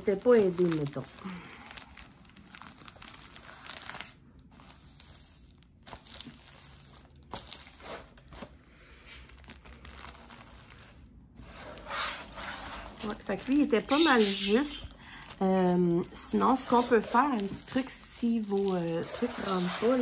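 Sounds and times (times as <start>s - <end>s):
plastic sleeve crinkling: 0.0s - 20.0s.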